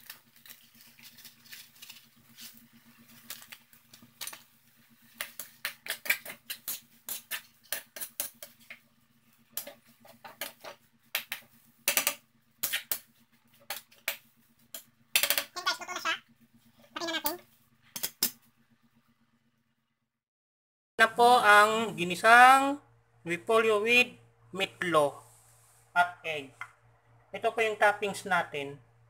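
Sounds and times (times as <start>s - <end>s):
metal spatula scraping frying pan: 5.1s - 8.7s.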